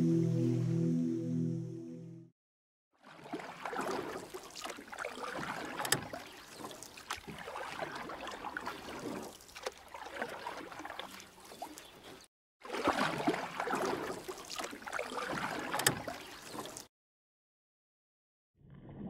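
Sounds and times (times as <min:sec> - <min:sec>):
water lapping against kayak hull: 0:03.0 - 0:16.9.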